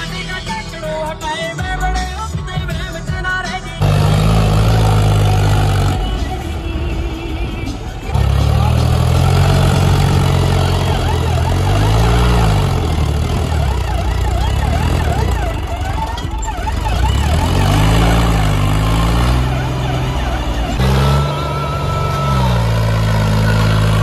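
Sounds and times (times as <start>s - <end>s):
tractor diesel engine revving: 0.0s - 24.0s
siren-like warbling tone: 10.5s - 24.0s.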